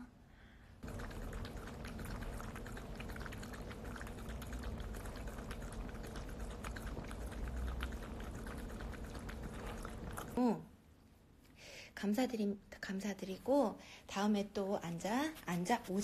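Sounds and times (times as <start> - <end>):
dog licking metal bowl: 0.8 - 10.4.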